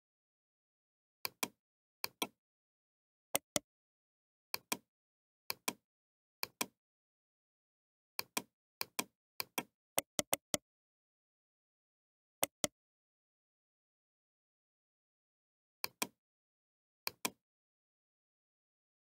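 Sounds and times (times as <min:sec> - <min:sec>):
mouse button clicks: 0:08.2 - 0:10.6.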